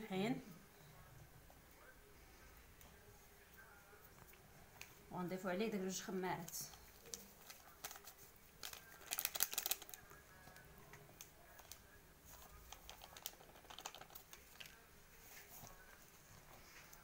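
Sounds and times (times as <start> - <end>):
hands mixing dough crackling: 1.4 - 17.0
paper sachet crinkling: 6.5 - 10.6, 11.4 - 15.8.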